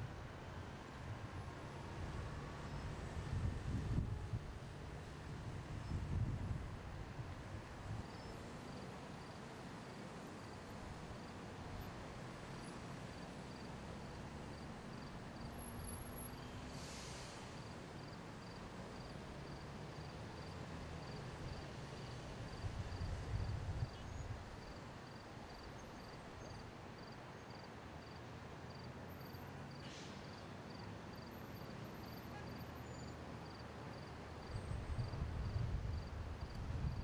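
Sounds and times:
distant city traffic hum: 0.0 - 37.0
brief high hiss: 16.7 - 17.6.

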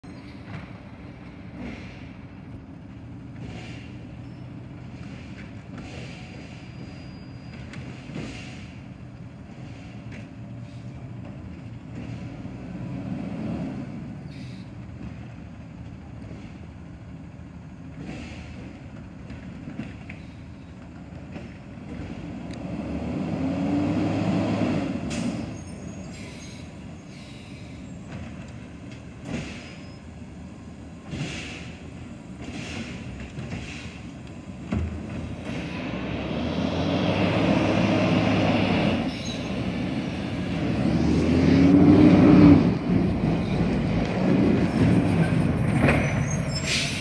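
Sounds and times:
garbage truck diesel engine: 0.0 - 47.0
air brake hisses: 8.1 - 8.8, 14.3 - 14.7, 25.1 - 27.9, 29.3 - 30.0, 31.1 - 34.1, 46.3 - 47.0.

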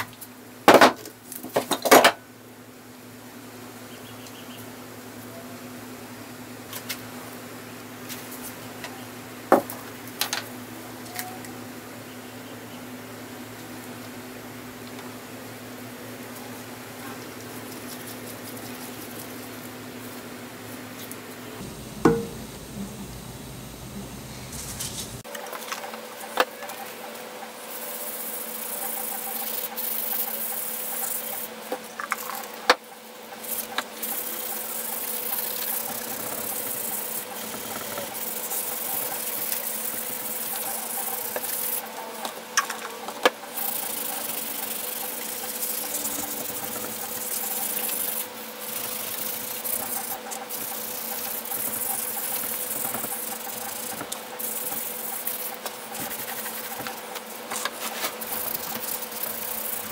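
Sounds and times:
low hum: 21.6 - 25.2.

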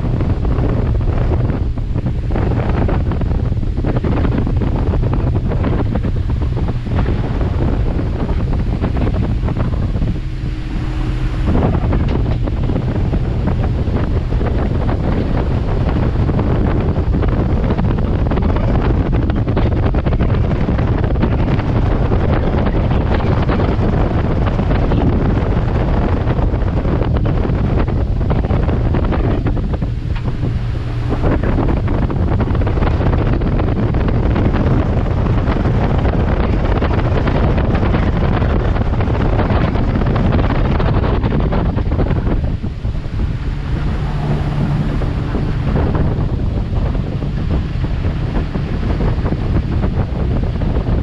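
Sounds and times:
outboard engine running: 0.0 - 51.0
water rushing past hull: 0.0 - 51.0
wind buffeting microphone: 0.0 - 51.0.

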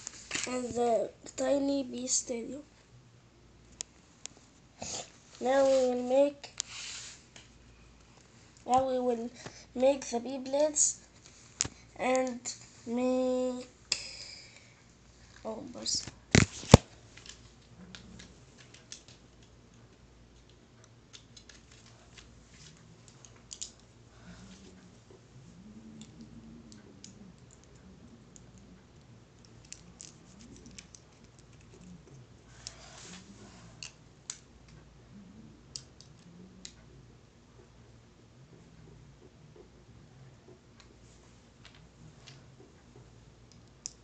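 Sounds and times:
small plastic and metal parts clicking: 23.1 - 23.8, 29.4 - 32.0.

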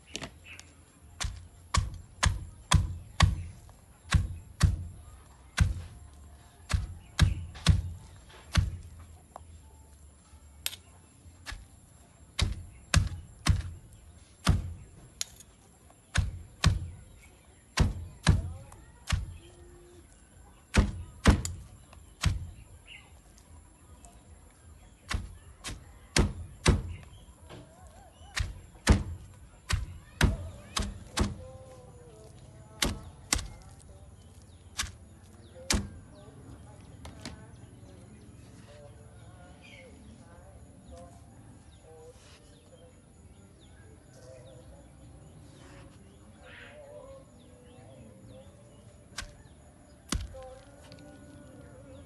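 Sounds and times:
pestle pounding in stone mortar: 1.2 - 3.5.

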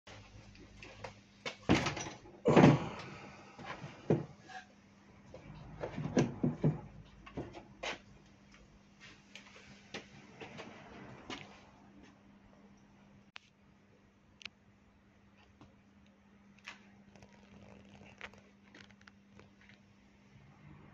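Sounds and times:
bike knocking on wooden workbench: 6.0 - 7.6.

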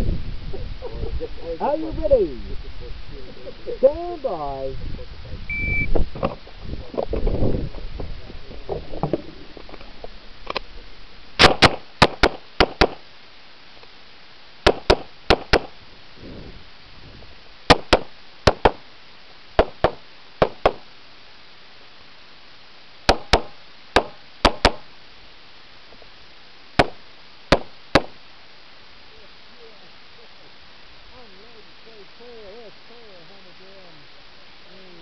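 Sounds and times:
pistol shots: 11.4 - 13.0, 26.8 - 28.2.

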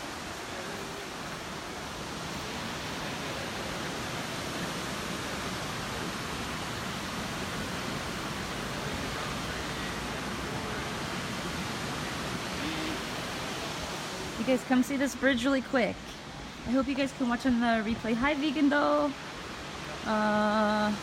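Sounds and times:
water rushing over rocks: 0.0 - 21.0.

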